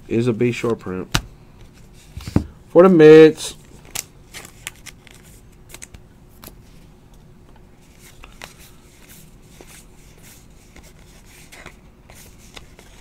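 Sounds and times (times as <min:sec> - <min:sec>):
cards being flipped through: 0:03.6 - 0:06.7, 0:07.8 - 0:13.0.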